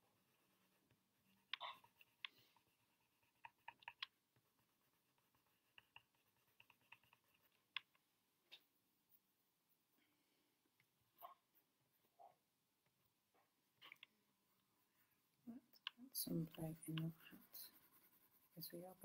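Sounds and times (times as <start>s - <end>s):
coloured pencil tapping on paper: 1.3s - 8.7s, 15.8s - 19.0s.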